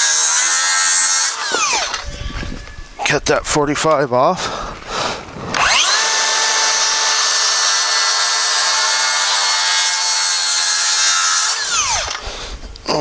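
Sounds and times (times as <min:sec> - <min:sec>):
circular saw cutting wood: 0:00.0 - 0:02.2, 0:05.5 - 0:12.5.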